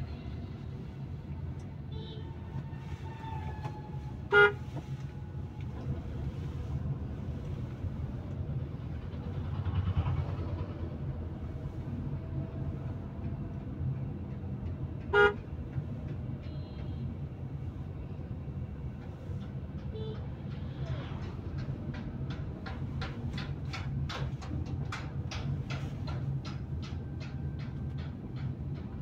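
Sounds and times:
car engine and road rumble: 0.0s - 29.0s
vehicle horn toot: 4.3s - 4.8s, 15.1s - 15.4s.

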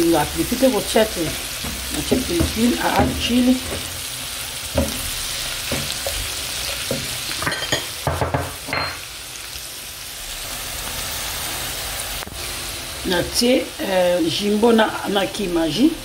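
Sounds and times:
vegetables sizzling in oil: 0.0s - 16.0s
spatula scraping and knocking pan: 1.6s - 9.0s.

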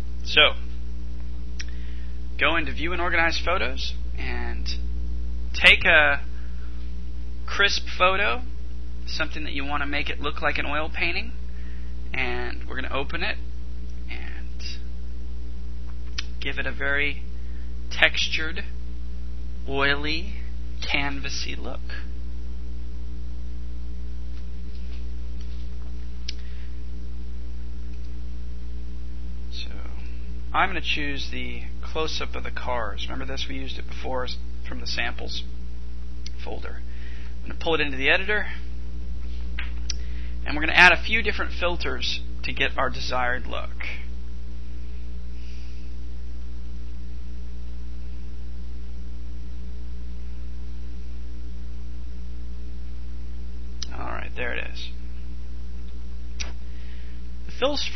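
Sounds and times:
electrical hum: 0.0s - 57.9s
faint hiss: 24.3s - 51.4s.

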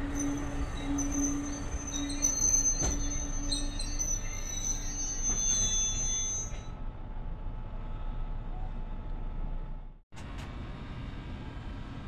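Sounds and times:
metallic wheel squeal: 0.0s - 6.8s
train rumbling: 0.0s - 12.0s.

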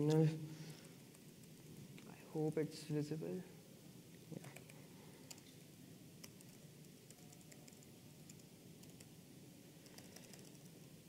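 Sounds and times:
laptop keyboard clicks: 9.8s - 10.7s.

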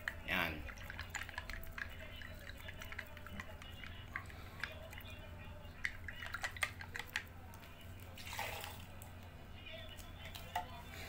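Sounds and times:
stick stirring paint in jar: 0.0s - 5.0s, 5.8s - 7.8s
low steady hum: 0.0s - 11.0s.

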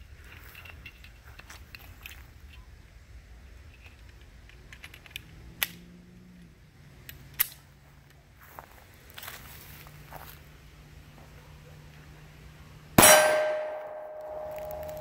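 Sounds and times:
pistol metallic clicks: 4.1s - 5.9s, 7.0s - 7.6s.

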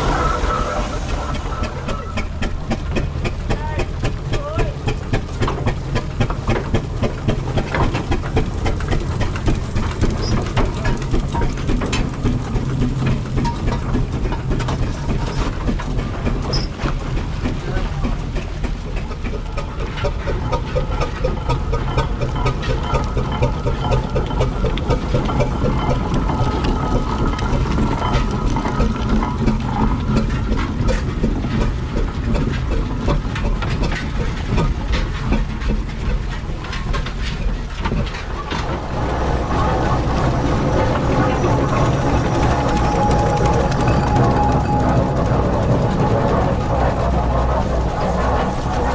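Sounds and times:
steam hissing: 0.0s - 4.3s
clattering engine motion: 0.0s - 48.9s
steady tone: 38.9s - 48.9s.

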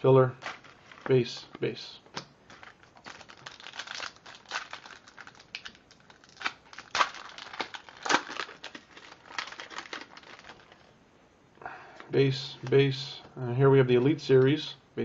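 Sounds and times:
foil wrapper crinkling: 0.4s - 1.2s, 2.5s - 10.9s.

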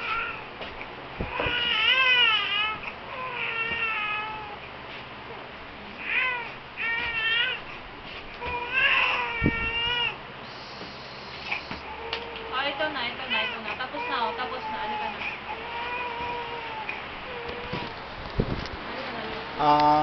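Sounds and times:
baby crying: 1.3s - 4.6s, 6.0s - 7.6s, 8.4s - 10.2s, 11.9s - 17.9s.

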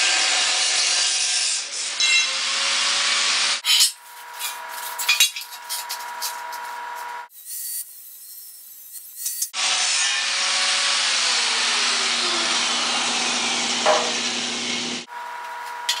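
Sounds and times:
angle grinder cutting steel: 0.0s - 15.1s.

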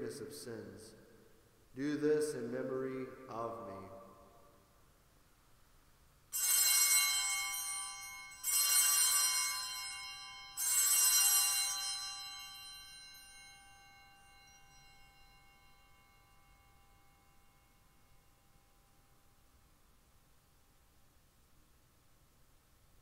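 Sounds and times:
altar bells ringing: 6.3s - 19.0s.

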